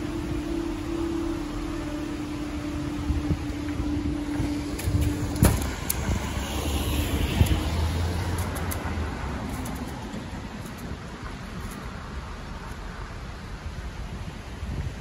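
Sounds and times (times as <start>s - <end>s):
barrier motor humming: 0.0s - 10.0s
car engine rumbling: 0.0s - 15.0s
barrier clunk: 4.3s - 5.9s.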